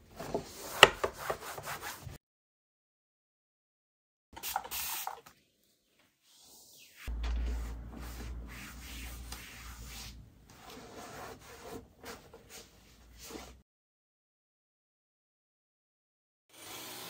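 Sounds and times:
something rubbing against surface: 7.0s - 13.6s
low rumble: 7.1s - 10.4s.

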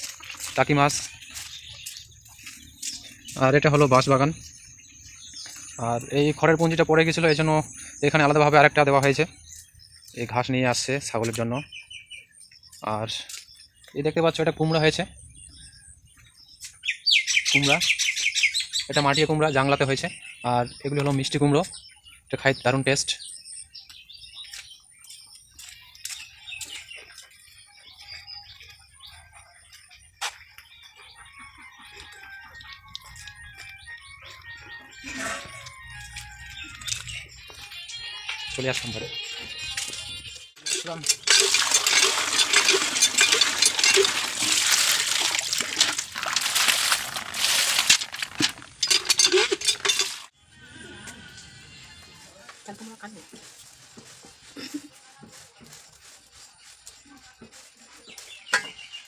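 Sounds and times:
small birds chirping: 0.0s - 47.6s, 48.3s - 59.0s
hand pump being worked: 40.6s - 50.3s
water splashing into metal bucket: 40.6s - 50.3s
small metal clinks: 48.8s - 50.3s.

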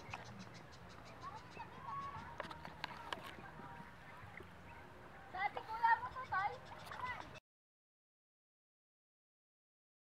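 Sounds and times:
bird chirps: 0.0s - 2.7s, 6.0s - 7.4s.

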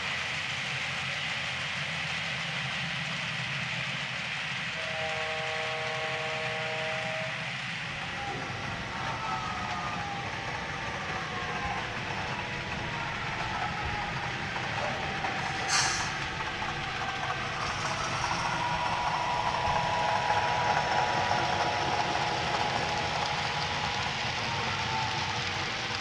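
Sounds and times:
model locomotive diesel engine sound: 0.0s - 26.0s
model train wheels on track: 0.0s - 26.0s
short sharp burst: 15.5s - 16.2s.

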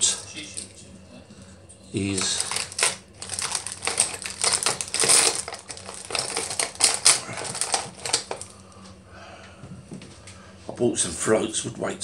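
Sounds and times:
hands rummaging through tackle: 2.2s - 8.5s.

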